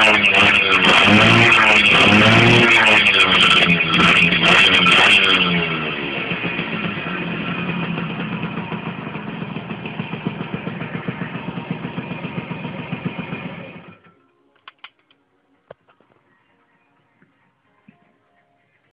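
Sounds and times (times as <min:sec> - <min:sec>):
two-stroke engine idling: 0:00.0 - 0:14.1.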